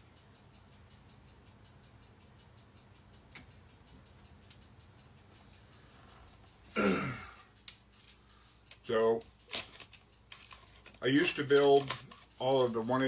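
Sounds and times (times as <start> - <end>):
faint regular ticking: 0.0 - 13.0.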